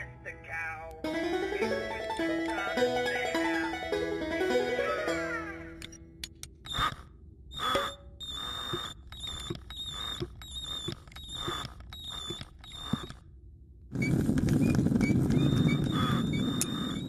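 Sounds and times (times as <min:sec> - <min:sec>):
squeaking metal mechanism: 0:05.8 - 0:13.3, 0:14.0 - 0:17.0.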